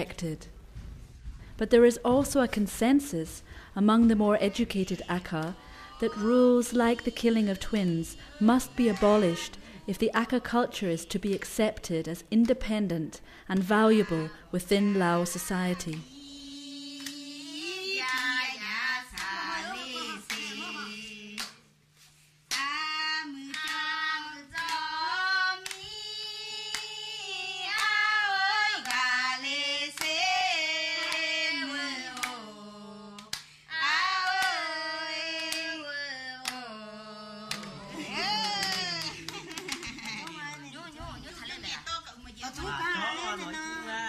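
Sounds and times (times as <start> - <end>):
woman singing unaccompanied: 1.7 - 21.6, 22.5 - 39.3
hand claps: 17.0 - 17.2, 18.0 - 18.4, 19.1 - 19.4, 20.2 - 20.7, 21.4 - 21.6, 22.5 - 22.7, 23.5 - 23.9, 24.5 - 24.9, 25.6 - 26.0, 26.7 - 26.9, 27.7 - 28.0, 28.8 - 29.1, 30.0 - 30.2, 32.2 - 32.4, 33.2 - 33.5, 34.2 - 34.7, 35.4 - 35.8, 36.4 - 36.6, 37.5 - 40.6.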